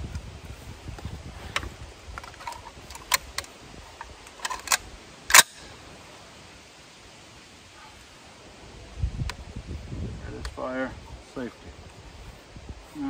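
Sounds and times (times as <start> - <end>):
small metallic clicks: 1.5 - 5.6
rifle action metallic clack: 4.3 - 5.6.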